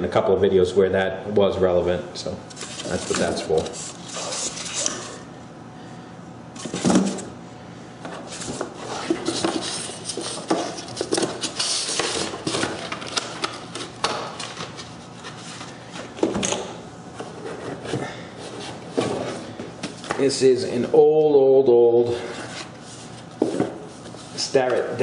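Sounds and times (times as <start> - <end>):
paper and cardboard rustling: 2.5 - 5.2, 8.2 - 16.2.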